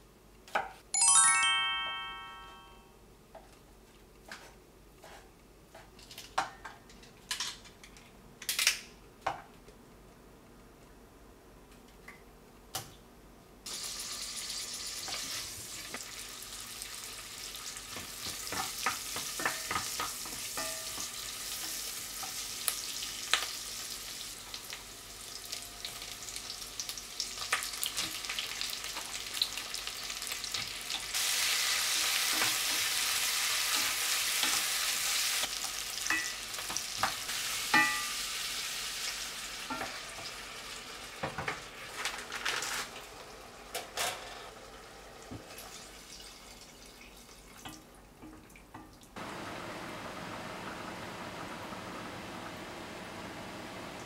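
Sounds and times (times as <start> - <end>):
onions sizzling in a pot: 13.7 - 46.4.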